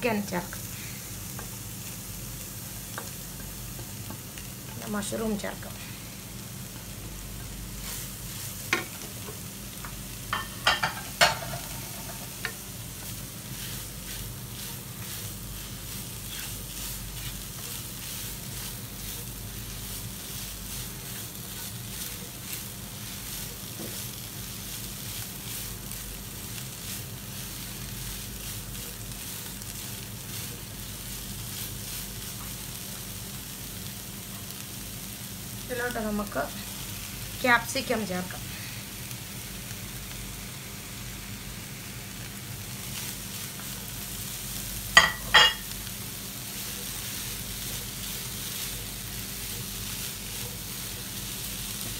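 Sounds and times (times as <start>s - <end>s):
food sizzling in a pan: 0.0s - 51.9s
spatula scraping a pan: 13.4s - 24.2s.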